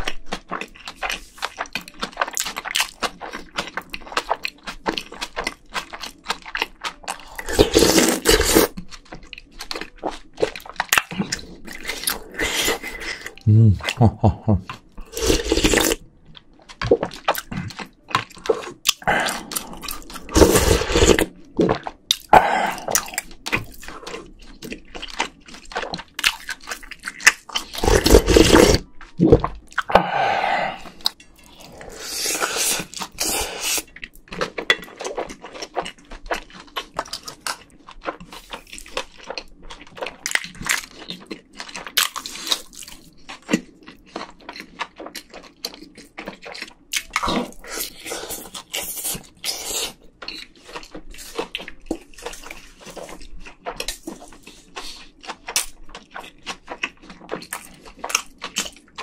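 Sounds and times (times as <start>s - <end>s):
wet chewing and mouth smacks: 0.0s - 59.0s
slurping from spoon: 7.3s - 8.8s, 11.3s - 13.4s, 15.0s - 16.0s, 18.4s - 21.3s, 27.6s - 33.9s.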